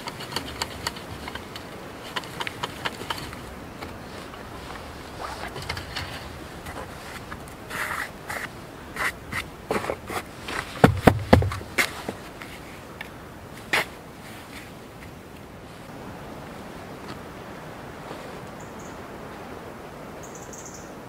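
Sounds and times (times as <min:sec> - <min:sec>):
plastic bucket scraping and knocking: 0:00.0 - 0:12.2
dull thumps of bucket: 0:10.6 - 0:12.0.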